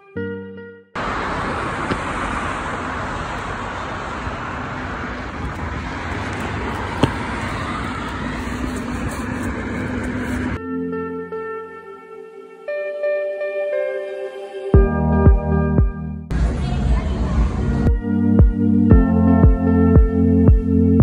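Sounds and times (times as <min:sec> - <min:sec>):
road traffic roar: 0:01.0 - 0:10.6, 0:16.3 - 0:20.4.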